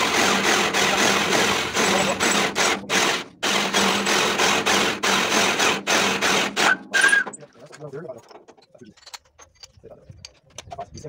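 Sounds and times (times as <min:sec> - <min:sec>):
electric drill boring through steel: 0:00.0 - 0:07.2.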